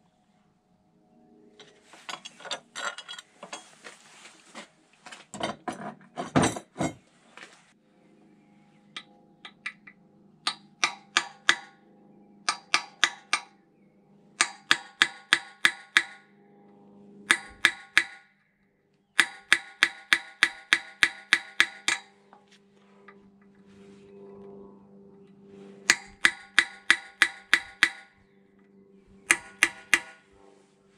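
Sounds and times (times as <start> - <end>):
hammer striking metal: 9.0 - 11.8, 12.4 - 13.5, 14.4 - 16.3, 17.3 - 18.2, 19.2 - 22.1, 25.9 - 28.1, 29.3 - 30.2.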